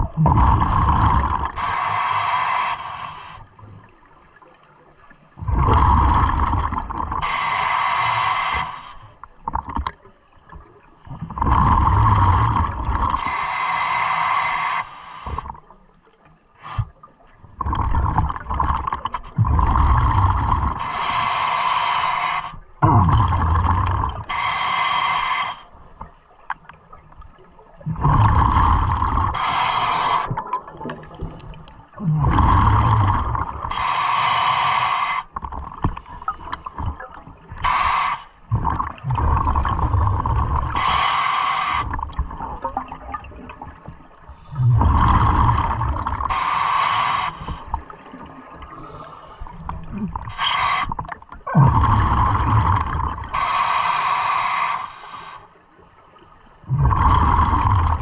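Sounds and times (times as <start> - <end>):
bubbly exhale rumble: 0.0 - 1.7, 5.4 - 7.5, 11.1 - 13.3, 17.5 - 20.9, 22.8 - 24.5, 27.8 - 34.0, 35.2 - 53.6, 56.6 - 58.0
regulator hiss on inhale: 1.1 - 3.6, 7.2 - 9.3, 13.0 - 15.5, 20.6 - 22.7, 24.2 - 26.4, 29.2 - 30.4, 33.6 - 38.5, 39.5 - 42.2, 44.3 - 48.0, 48.7 - 51.1, 51.9 - 55.8.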